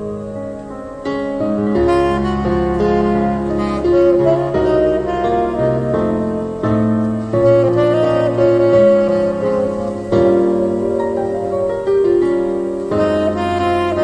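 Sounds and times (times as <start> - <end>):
bass: 0.0 - 14.0
piano chords: 0.0 - 14.0
saxophone melody: 0.0 - 14.0.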